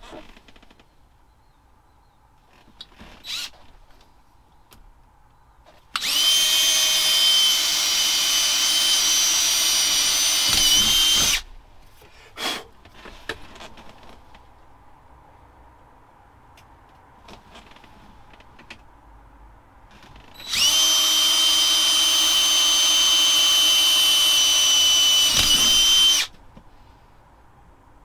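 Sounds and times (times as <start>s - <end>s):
cordless drill drilling: 6.0s - 11.4s, 20.4s - 26.3s.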